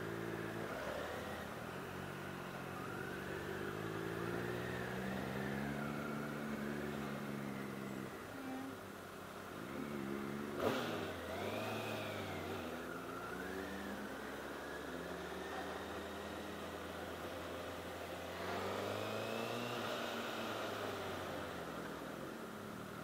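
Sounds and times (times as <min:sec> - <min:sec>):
motorcycle engine revving: 0:09.6 - 0:22.1.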